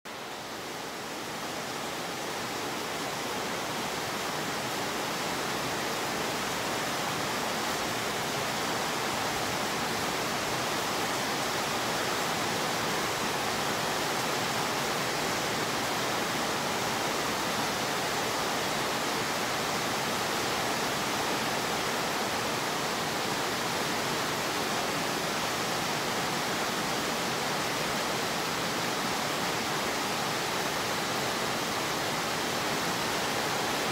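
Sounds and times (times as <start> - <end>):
rain falling on concrete: 0.1 - 33.9.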